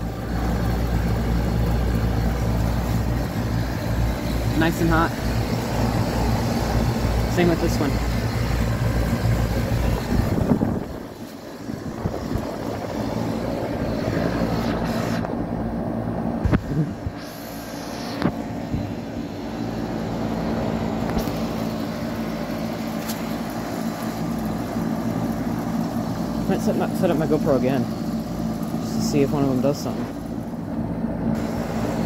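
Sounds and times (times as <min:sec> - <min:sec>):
compressor hum: 0:00.0 - 0:32.0
outdoor fans rushing: 0:00.0 - 0:32.0.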